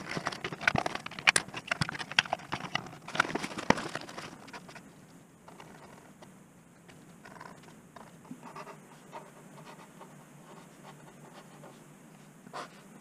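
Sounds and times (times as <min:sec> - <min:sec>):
marker scratching on cardboard: 0:08.4 - 0:13.0.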